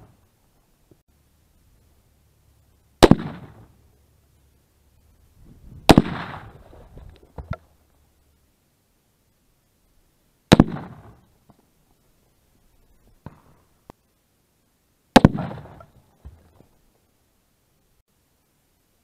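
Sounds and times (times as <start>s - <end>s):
gunshots hitting pumpkins: 3.0s - 3.7s, 5.8s - 6.6s, 10.5s - 11.2s, 15.1s - 15.8s.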